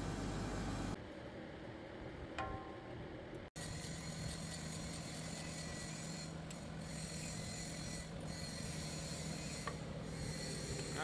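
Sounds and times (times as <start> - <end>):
metal scraping on metal: 3.6 - 11.0.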